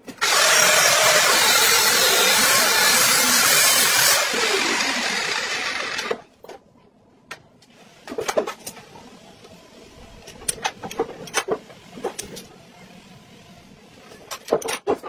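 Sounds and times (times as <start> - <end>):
angle grinder cutting steel: 0.1 - 6.2.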